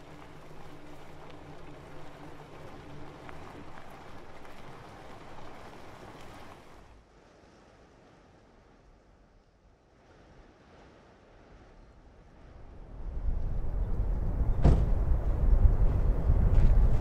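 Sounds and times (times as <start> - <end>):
tyres rolling over gravel: 0.0 - 6.8.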